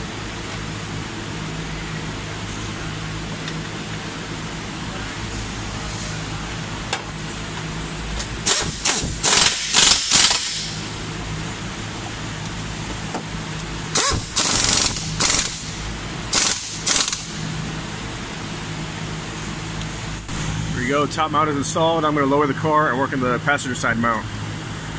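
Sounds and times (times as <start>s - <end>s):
steady low hum: 0.0s - 24.9s
air-powered wrench bursts: 8.4s - 10.9s, 13.9s - 17.4s.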